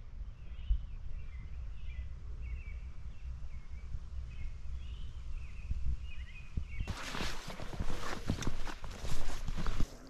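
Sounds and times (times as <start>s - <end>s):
small songbird chirping: 0.0s - 7.4s.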